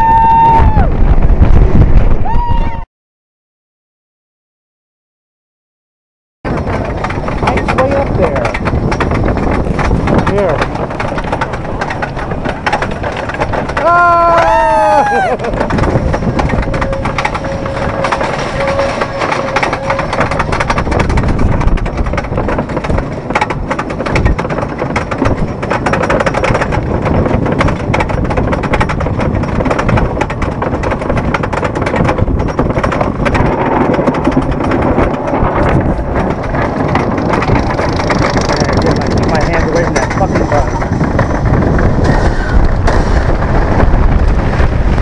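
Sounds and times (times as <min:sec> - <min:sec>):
roller coaster lift chain clattering: 0:06.5 - 0:45.0.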